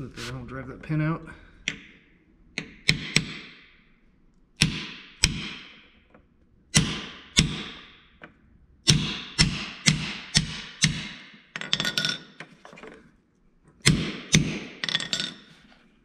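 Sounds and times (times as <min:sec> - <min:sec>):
hammer striking metal punch: 0:02.6 - 0:03.6, 0:04.6 - 0:05.8, 0:06.7 - 0:08.0, 0:08.8 - 0:11.4, 0:13.8 - 0:14.8.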